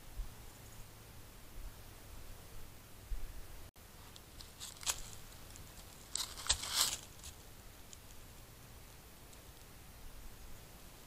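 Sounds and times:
dry leaves crunching and rustling: 4.0 - 8.3.

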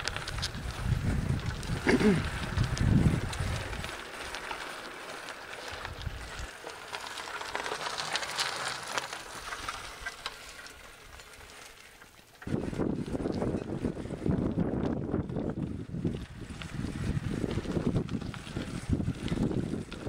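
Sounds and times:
wind rumble on microphone: 0.0 - 4.6, 5.6 - 6.6, 12.4 - 20.0
bicycle tyres on gravel: 0.0 - 20.0.

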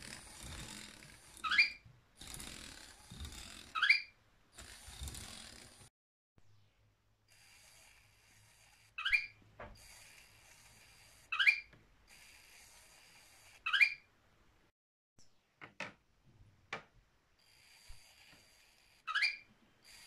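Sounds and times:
toy motor humming: 0.0 - 5.9, 7.3 - 14.0, 17.4 - 20.0
loud pitched mechanism squeak: 1.4 - 1.8, 3.8 - 4.2, 9.0 - 9.4, 11.3 - 11.7, 13.7 - 14.1, 19.1 - 19.5.

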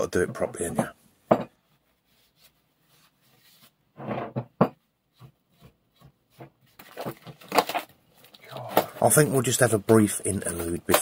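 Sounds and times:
wipe rubbing on metal: 1.7 - 4.3
vice knocking on wooden bench: 4.0 - 5.3.

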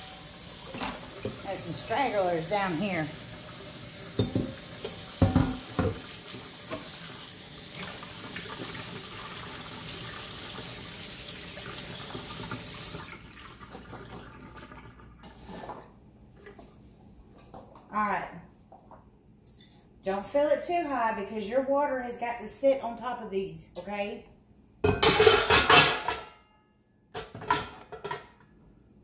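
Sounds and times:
faucet water running onto potatoes: 0.0 - 14.8.

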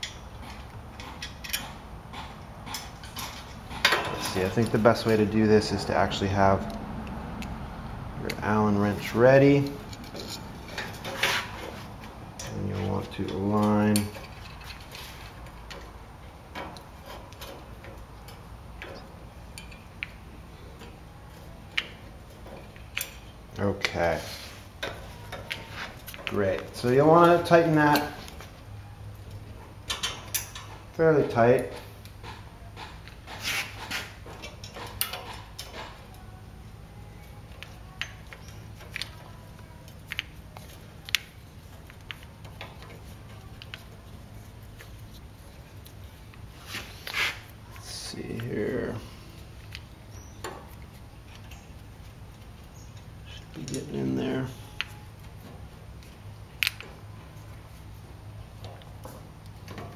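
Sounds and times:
steady low hum: 0.0 - 59.9
allen wrench clicking on metal: 16.6 - 20.1.

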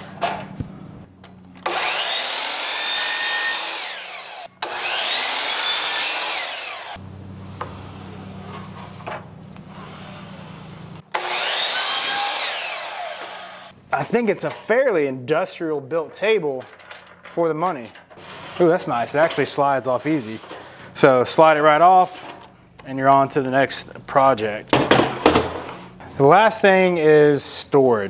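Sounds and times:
miter saw cutting wood: 1.6 - 8.6, 9.7 - 13.8
steady low hum: 6.9 - 11.2.

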